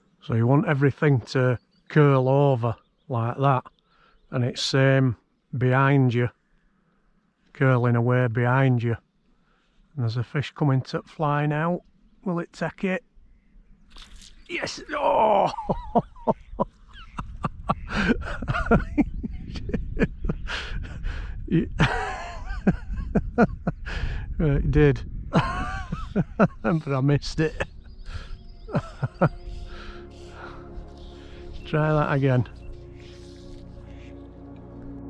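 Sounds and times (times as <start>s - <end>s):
soft ambient music: 14.0s - 20.2s, 21.8s - 23.3s, 25.4s - 35.0s
man's wordless exclamations: 14.5s - 15.7s
steady low rumble: 15.6s - 35.0s.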